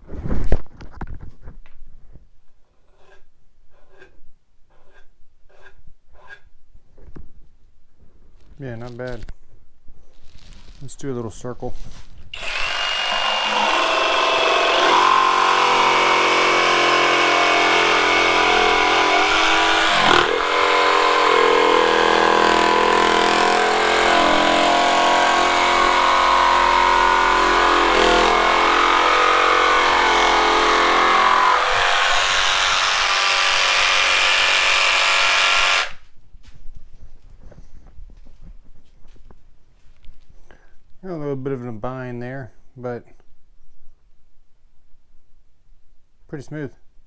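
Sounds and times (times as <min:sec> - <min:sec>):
jigsaw cutting wood: 0:12.3 - 0:36.0.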